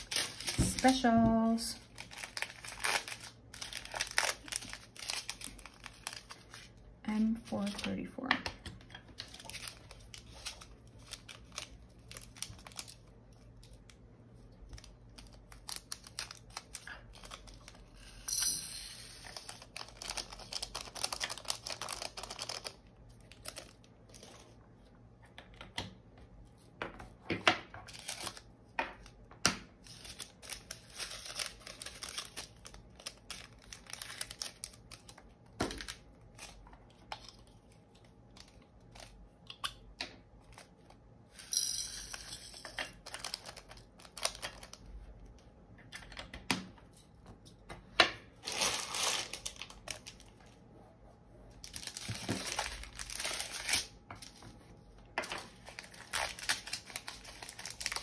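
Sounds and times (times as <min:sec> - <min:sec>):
plastic bags crinkling: 0:00.0 - 0:07.9, 0:09.0 - 0:13.4, 0:14.7 - 0:18.0, 0:19.2 - 0:24.5, 0:29.8 - 0:39.2, 0:42.8 - 0:44.9, 0:48.3 - 0:50.6, 0:51.6 - 0:54.4, 0:55.2 - 0:58.0.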